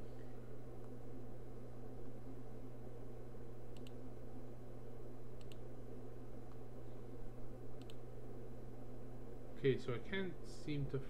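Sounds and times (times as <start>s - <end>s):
low electrical hum: 0.0s - 11.0s
computer mouse clicking: 3.7s - 4.0s, 5.4s - 5.6s, 7.8s - 8.0s.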